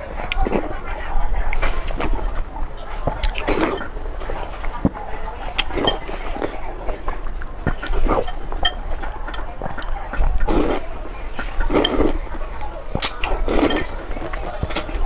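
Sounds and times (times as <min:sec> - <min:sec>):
person slurping noodles: 0:03.2 - 0:03.9, 0:10.4 - 0:10.8, 0:11.7 - 0:12.2, 0:13.0 - 0:13.9.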